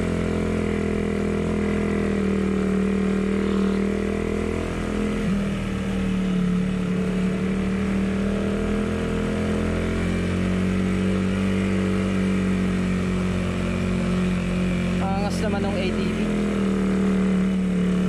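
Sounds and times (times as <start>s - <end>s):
small engine running: 0.0s - 4.7s.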